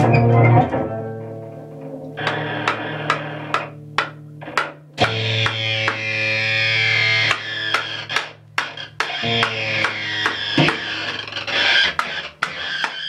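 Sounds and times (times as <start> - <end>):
low cello drone: 0.0 - 13.0
sharp wooden knocks: 2.2 - 6.2, 7.2 - 13.0.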